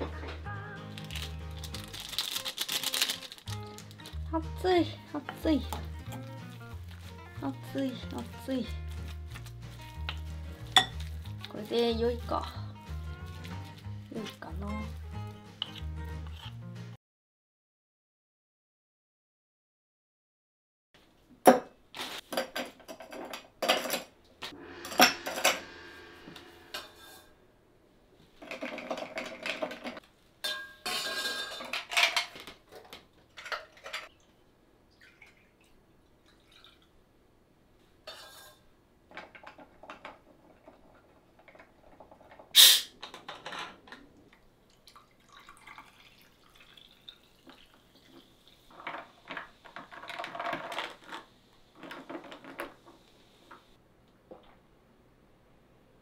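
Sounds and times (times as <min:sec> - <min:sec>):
liquid pouring into glass: 0:44.7 - 0:48.1.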